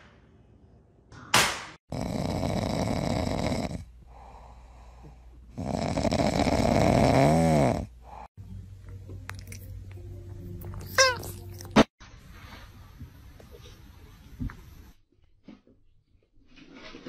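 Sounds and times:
dog snoring: 1.9 - 4.6, 5.5 - 8.3.

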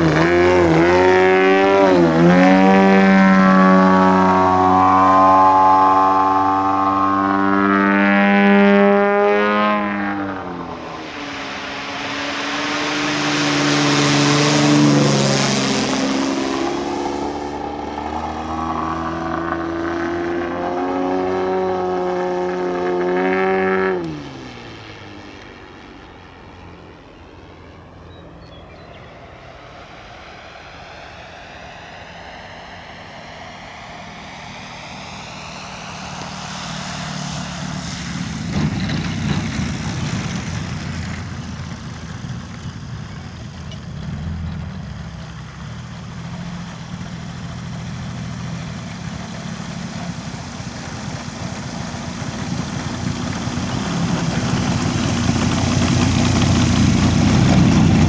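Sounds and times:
model airplane engine and propeller: 0.0 - 58.0
rushing hiss: 45.3 - 58.0.

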